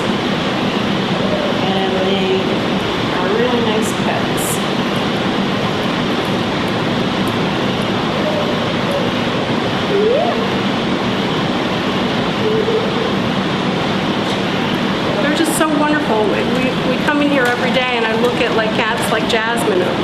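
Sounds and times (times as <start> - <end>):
loud rushing noise: 0.0 - 17.1
short rising cry: 9.9 - 10.6.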